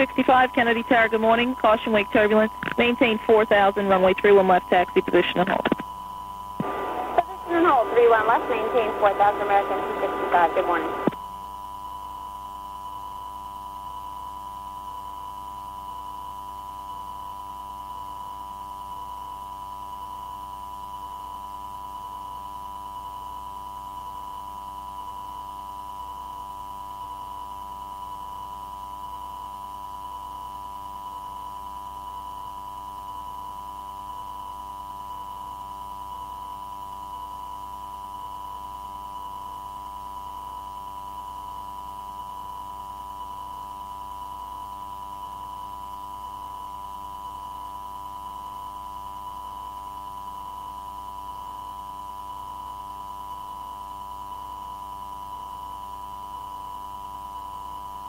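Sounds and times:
faint pulsing: 0.0s - 11.2s
constant electronic tone: 0.0s - 58.0s
low hum: 6.6s - 11.2s.

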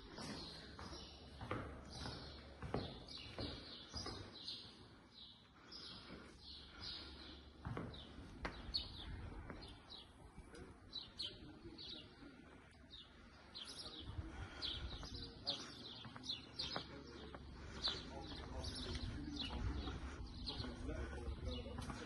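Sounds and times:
small birds chirping: 0.0s - 22.0s.

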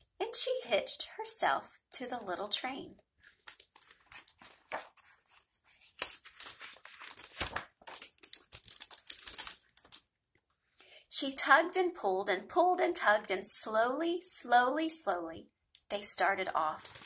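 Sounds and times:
paper page rustling: 3.2s - 10.0s.

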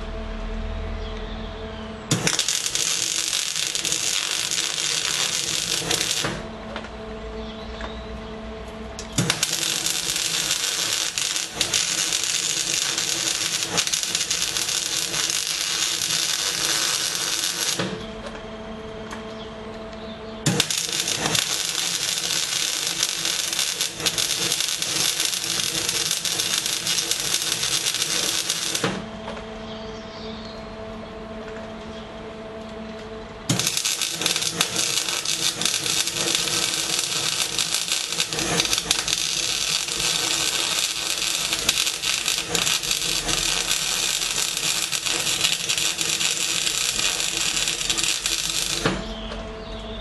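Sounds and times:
steady hum with tones: 0.0s - 50.0s
welding arc crackle and hiss: 2.1s - 6.5s, 9.0s - 18.0s, 20.4s - 29.1s, 33.5s - 49.2s.

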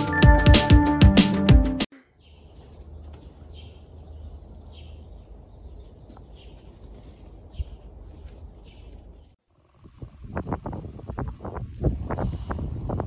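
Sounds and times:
bird chirping: 2.1s - 9.4s.

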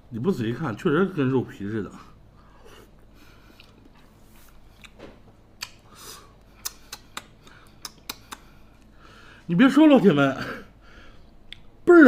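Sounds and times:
close chewing with mouth sounds: 2.6s - 9.0s.

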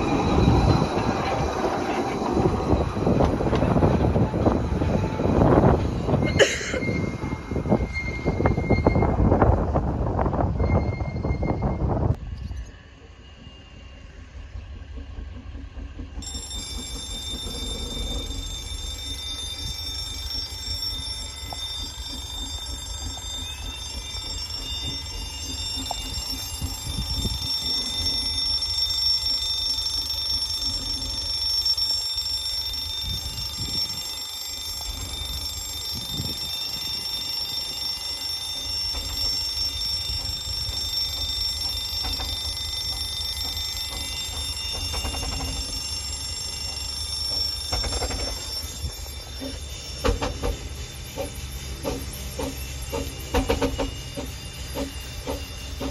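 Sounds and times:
level crossing alarm tone: 16.2s - 55.9s.

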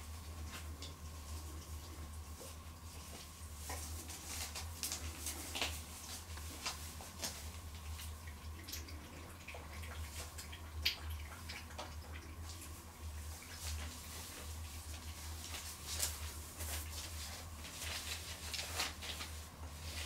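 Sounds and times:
puppies scuffling on plastic: 0.0s - 8.1s, 12.6s - 20.0s
steady low hum: 0.0s - 20.0s.

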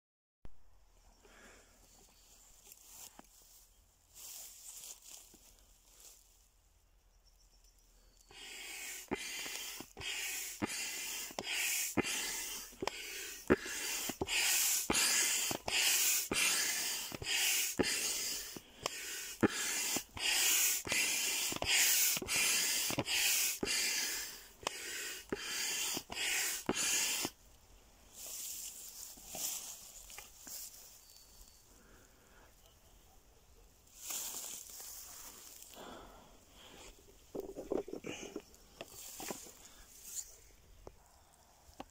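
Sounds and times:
hand pump pushing air: 8.3s - 27.4s, 37.3s - 40.4s.

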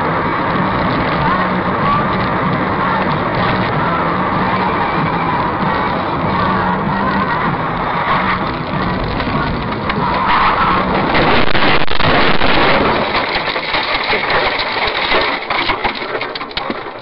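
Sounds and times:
motor vehicle running: 0.0s - 17.0s
road noise: 0.0s - 17.0s
sharp clattering knocks: 8.4s - 17.0s.

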